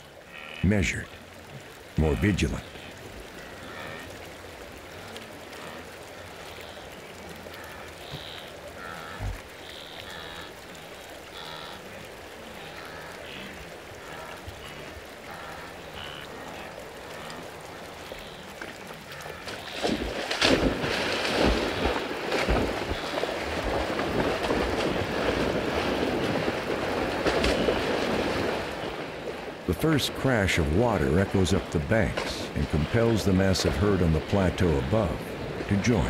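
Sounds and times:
heavy water splashing: 0.0 - 36.0
faint grunting calls: 7.5 - 19.8.

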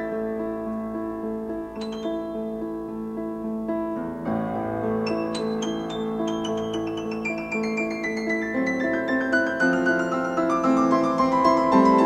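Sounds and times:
grand piano solo: 0.0 - 12.0.

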